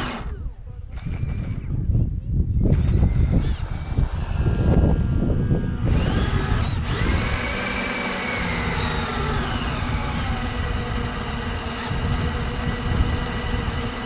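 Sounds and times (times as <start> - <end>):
electric motor whining: 0.0 - 14.0.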